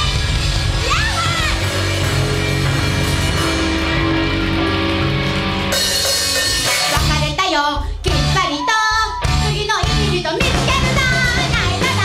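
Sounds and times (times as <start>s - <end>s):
electric guitar: 0.0s - 7.4s
drum kit with cymbals: 0.0s - 12.0s.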